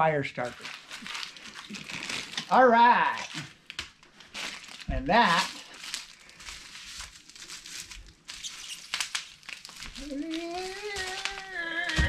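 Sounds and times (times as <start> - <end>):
plastic wrap crinkling: 0.4 - 12.0
long held vocal tone: 10.0 - 12.0.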